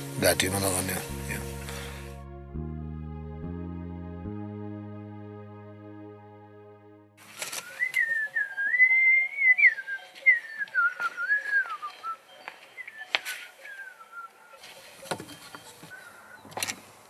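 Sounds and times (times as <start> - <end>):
soft background music: 0.0 - 15.9
man whistling a slow tune: 7.6 - 14.4.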